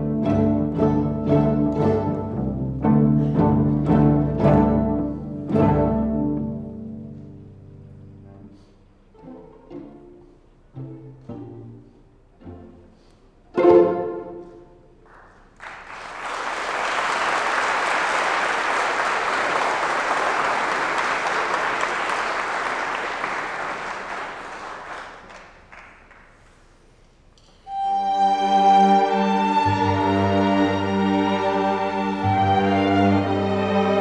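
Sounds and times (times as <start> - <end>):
strings bowed chords: 0.0 - 15.0, 27.7 - 34.0
audience applause: 15.1 - 26.6.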